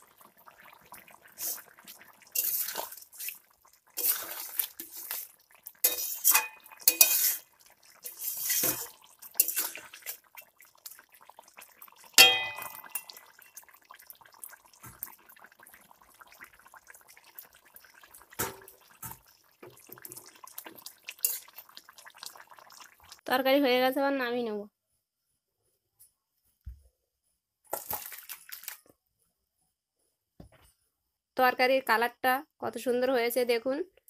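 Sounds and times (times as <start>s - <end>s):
curry simmering with faint crackle: 0.0s - 24.5s, 27.7s - 29.0s
metal spatula scraping a pot: 1.4s - 10.5s, 12.2s - 13.5s, 18.4s - 21.7s
metal clank on pot: 5.8s - 7.4s, 8.1s - 9.8s, 12.2s - 13.3s.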